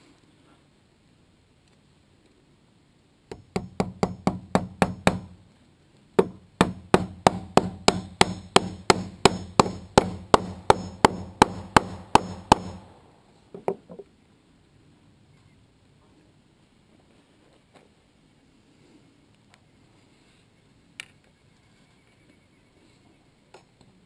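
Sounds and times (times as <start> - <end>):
hammer driving nails through metal: 3.3 - 5.3, 6.2 - 12.9.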